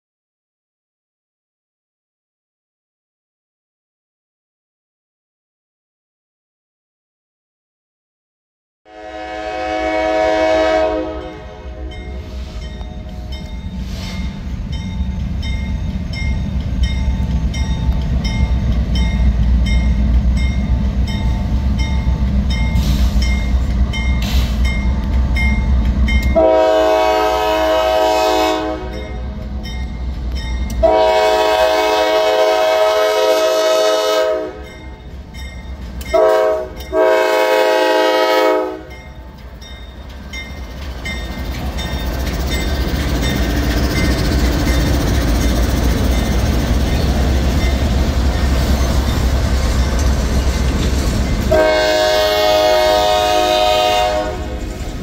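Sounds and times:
multi-note air horn: 8.9 - 12.6, 26.4 - 29.2, 30.8 - 34.6, 36.2 - 38.9, 51.5 - 54.6
diesel locomotive engine rumble: 8.9 - 55.0.

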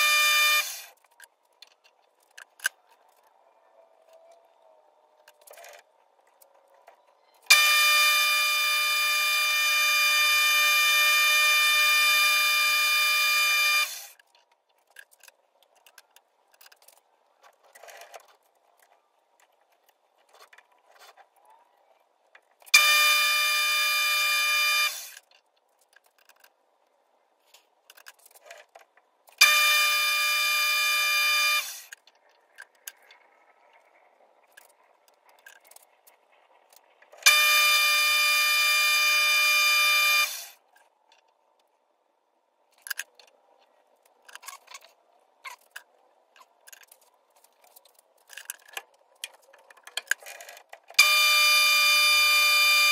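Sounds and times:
metal lathe whining: 37.2 - 40.6, 51.0 - 52.9.

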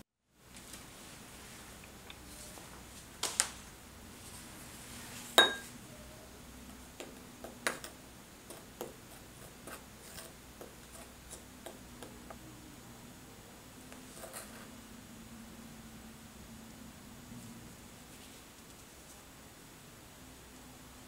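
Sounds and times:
wooden spoon tapping glass bowl: 5.4 - 5.7.

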